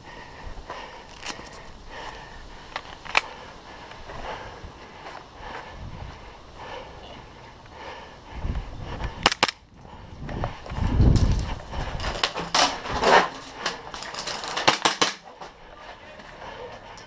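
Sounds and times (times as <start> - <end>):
low rumbling on microphone: 3.6 - 13.0.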